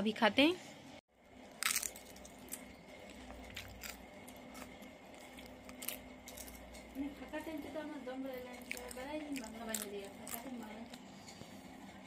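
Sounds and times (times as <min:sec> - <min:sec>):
low room hum: 0:00.0 - 0:12.0
boy chewing a snack: 0:01.6 - 0:07.0, 0:08.3 - 0:11.5.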